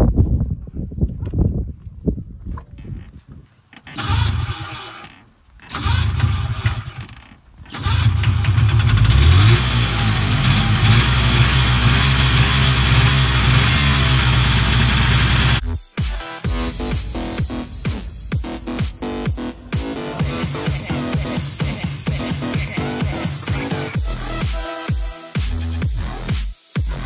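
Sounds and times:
recoil starter pulls: 3.8 - 15.6
snowmobile engine running: 7.7 - 15.6.

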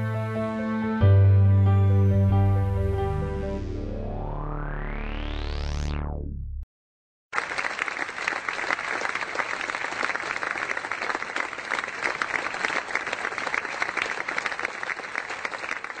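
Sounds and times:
audience applauding: 7.3 - 16.0.

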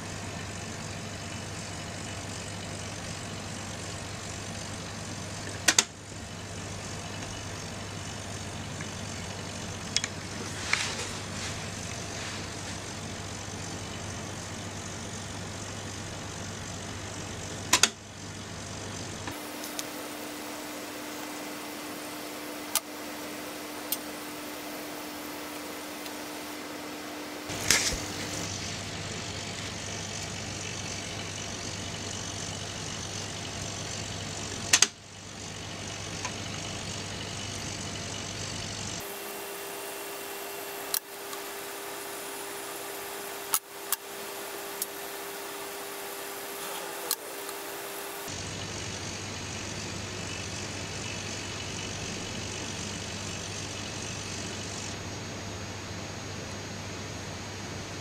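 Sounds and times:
small electric motor humming: 0.0 - 57.9.

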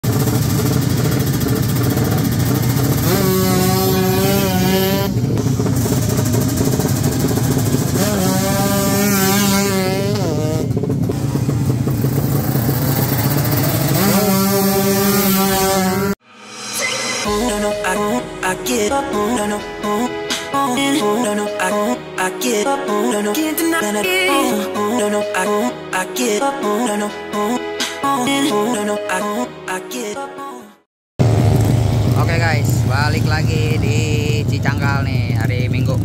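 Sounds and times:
motorcycle engine revving: 0.0 - 16.2, 31.2 - 36.0.

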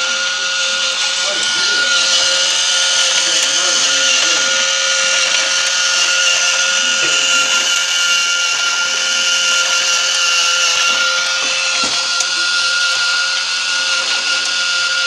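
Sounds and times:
high-pitched hum: 0.0 - 15.0
model engine mechanical whir: 0.0 - 15.0.

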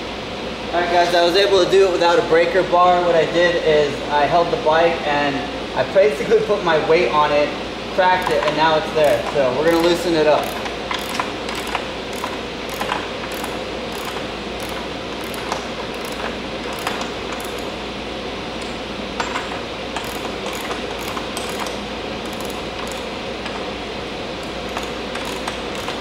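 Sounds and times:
fan running: 0.0 - 26.0
socket ratchet clicking: 10.4 - 17.7, 20.0 - 23.1, 24.4 - 26.0.

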